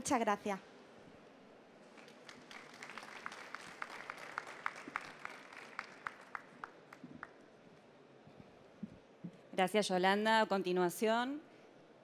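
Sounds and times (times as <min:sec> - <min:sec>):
soft applause: 0:01.8 - 0:07.4.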